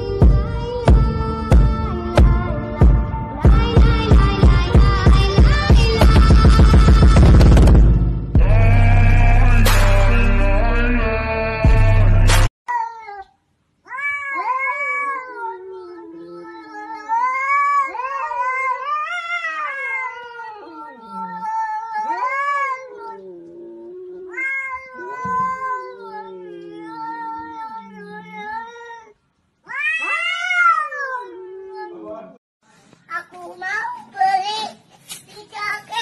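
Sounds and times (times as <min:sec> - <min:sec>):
cat yowling: 0:13.9 - 0:32.3.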